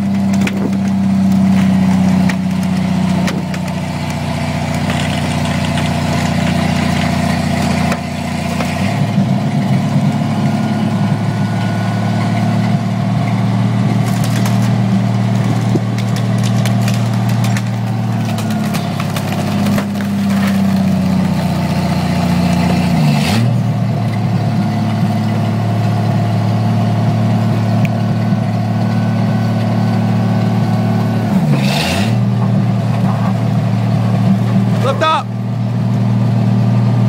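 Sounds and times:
car crusher pressing a car: 0.0 - 9.3
gas engine running steadily: 0.0 - 31.6.

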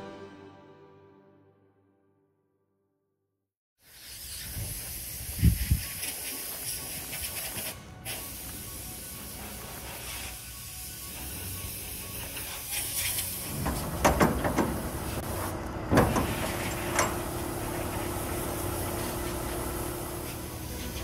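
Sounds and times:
metal doors clanking: 13.3 - 18.3.

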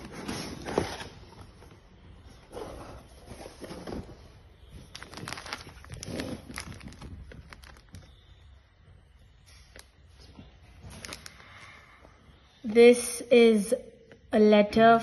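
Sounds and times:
paper and plastic rustling: 2.5 - 8.4, 9.4 - 11.8
sharp crackles: 4.8 - 8.4.

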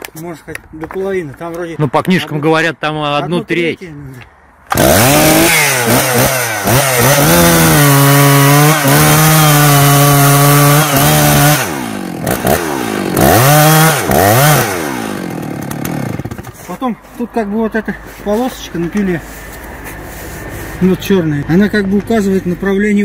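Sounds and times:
chainsaw cutting tree trunk: 4.7 - 16.6.

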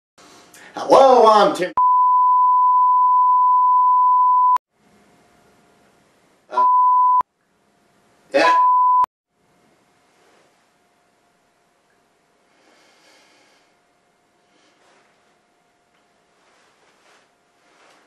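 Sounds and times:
censor bleep tone: 1.8 - 4.6, 6.6 - 7.2, 8.4 - 9.1
man speaking: 8.4 - 8.7.

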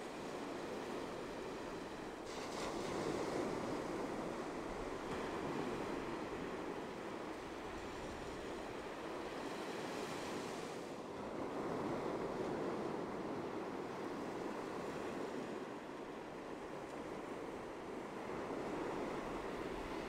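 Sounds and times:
ocean waves washing onto beach: 0.0 - 20.0.

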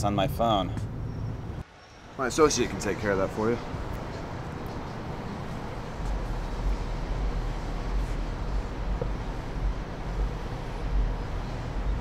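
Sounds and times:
faint outdoor town noise: 0.0 - 12.0
wind buffeting microphone: 3.6 - 12.0.

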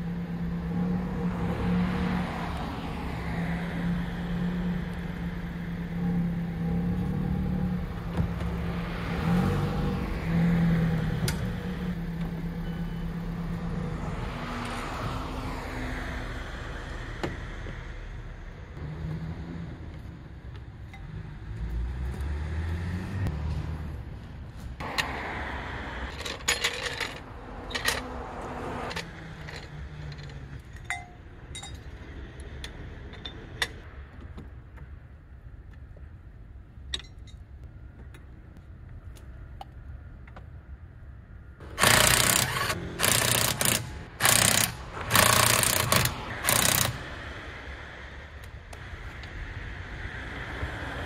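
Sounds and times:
tools clicking and knocking: 26.1 - 28.2, 28.8 - 34.9, 36.8 - 38.3, 41.7 - 47.1
impact wrench bursts: 41.6 - 47.2.

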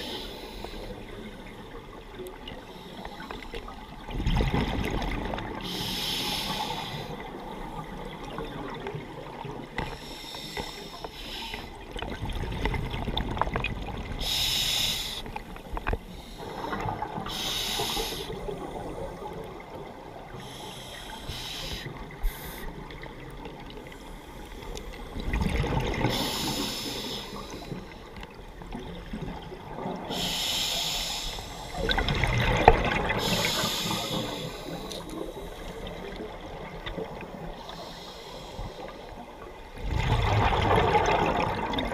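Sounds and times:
regulator hissing inhalation: 5.6 - 7.2, 14.2 - 15.3, 17.3 - 18.4, 20.4 - 22.7, 30.1 - 31.8, 33.2 - 35.7.

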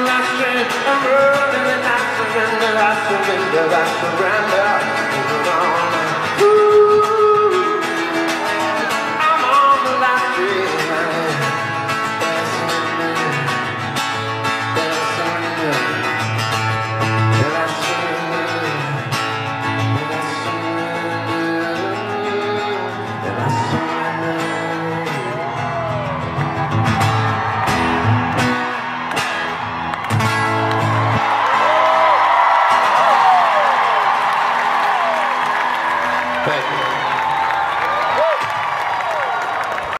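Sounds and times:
man singing: 0.0 - 26.1
acoustic guitar: 0.0 - 39.0.

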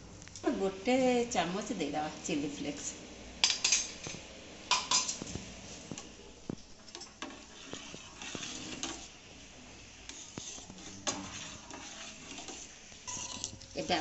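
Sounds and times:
spoon scraping steel pot: 6.8 - 9.2, 10.0 - 14.0.

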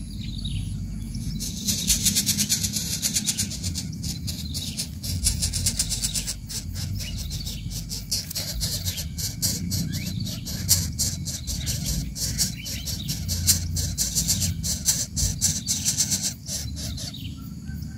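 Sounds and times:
low rumble: 0.0 - 17.9
chicks begging raspy calls: 0.2 - 17.9.

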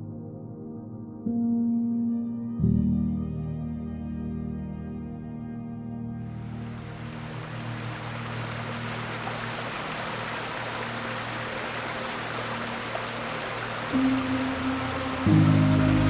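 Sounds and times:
water rushing over rocks: 6.4 - 16.0.

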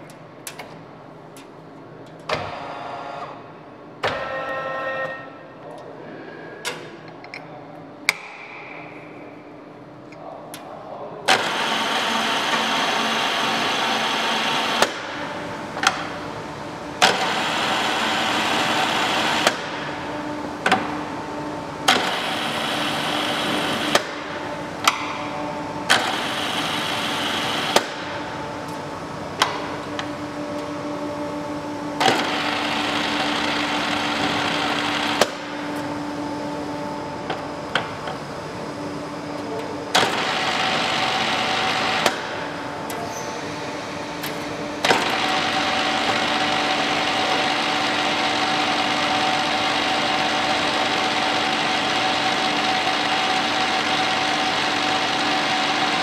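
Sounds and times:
drill machine whirring: 11.3 - 15.2, 17.0 - 20.0, 21.8 - 28.2, 32.0 - 35.8, 39.9 - 42.5, 43.4 - 56.0.

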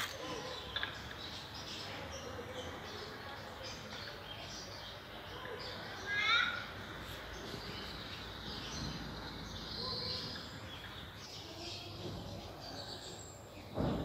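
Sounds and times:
street ambience: 0.0 - 14.0
short loud thump: 13.7 - 14.0.

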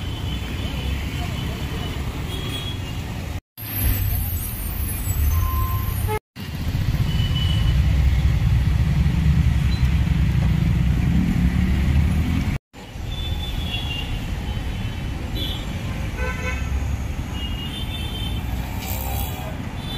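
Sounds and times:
road noise: 0.0 - 19.9
vehicle engines rumbling: 0.0 - 19.9.

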